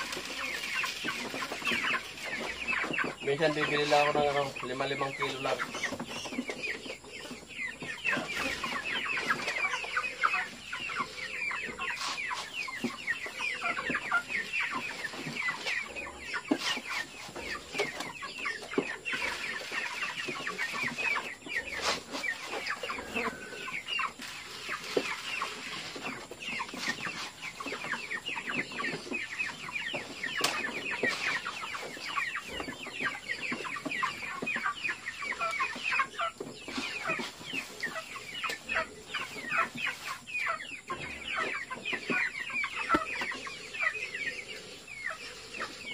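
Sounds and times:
chickens peeping and clucking: 0:00.0 - 0:45.9.

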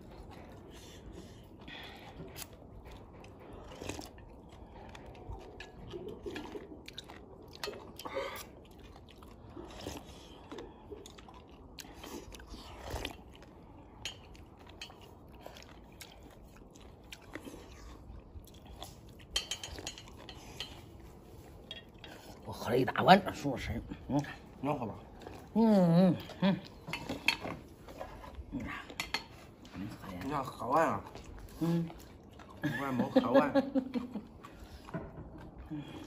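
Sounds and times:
person slurping and chewing: 0:00.0 - 0:22.5.

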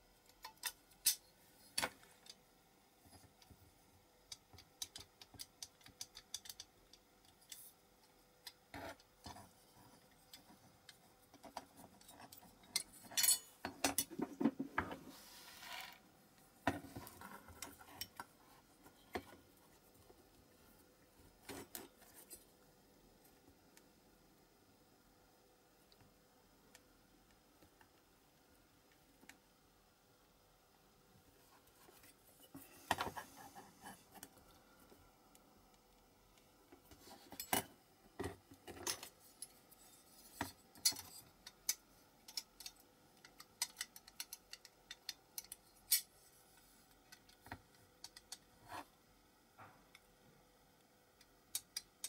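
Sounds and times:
metal model parts clinking: 0:12.1 - 0:14.1.

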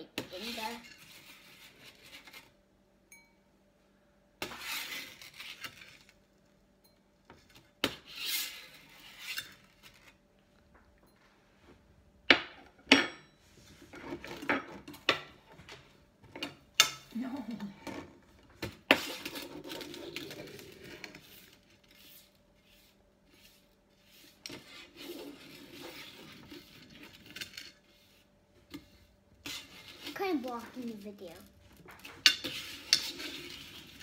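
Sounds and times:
metal spoon scraping pan: 0:04.4 - 0:06.0, 0:07.9 - 0:10.1, 0:18.9 - 0:30.8, 0:31.9 - 0:34.0.

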